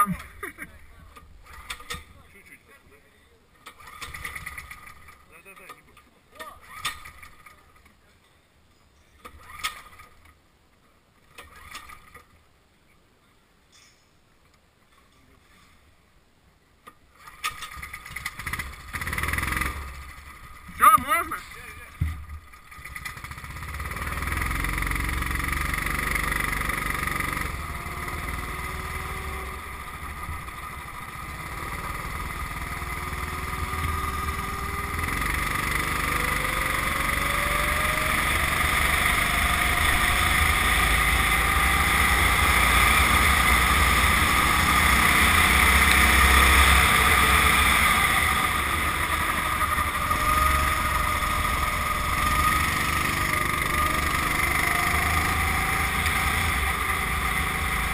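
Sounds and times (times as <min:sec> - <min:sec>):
kart engine accelerating: 0:03.6 - 0:05.3, 0:06.4 - 0:07.6, 0:17.2 - 0:21.3, 0:21.9 - 0:57.9.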